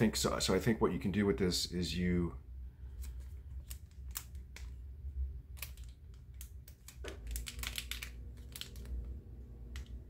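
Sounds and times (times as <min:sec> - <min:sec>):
plastic packaging crinkling: 0:05.5 - 0:10.0.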